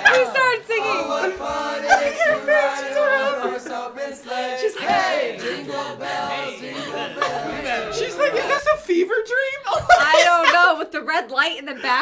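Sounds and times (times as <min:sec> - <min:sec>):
group singing a christmas carol: 0:00.0 - 0:09.0.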